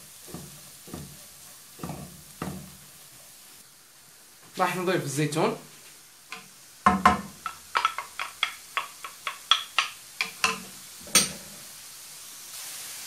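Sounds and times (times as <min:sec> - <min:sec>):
wooden spoon knocking on frying pan: 0:00.0 - 0:02.9, 0:06.3 - 0:11.4
faint sizzle of vegetables frying: 0:00.0 - 0:13.0.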